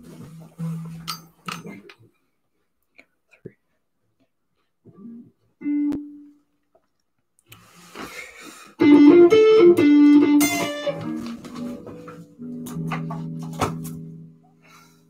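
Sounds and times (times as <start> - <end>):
electric guitar riff: 5.0 - 6.3, 8.8 - 14.5.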